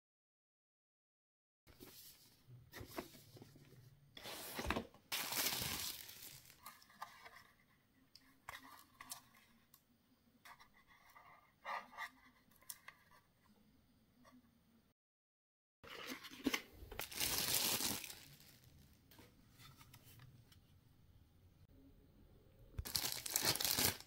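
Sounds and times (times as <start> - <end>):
plastic wrapper crinkling: 5.1 - 6.8, 16.9 - 18.8, 22.8 - 24.0.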